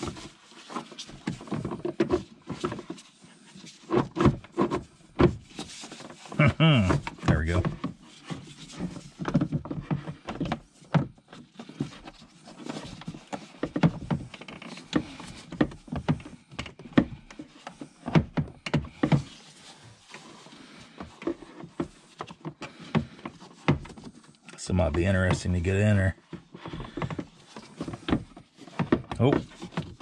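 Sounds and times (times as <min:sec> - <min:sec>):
plastic parts clicking and knocking: 0:06.9 - 0:25.4, 0:26.2 - 0:30.0.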